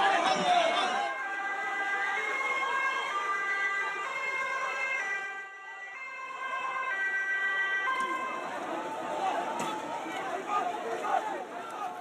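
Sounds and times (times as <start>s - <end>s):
two-tone emergency siren: 1.1s - 10.5s.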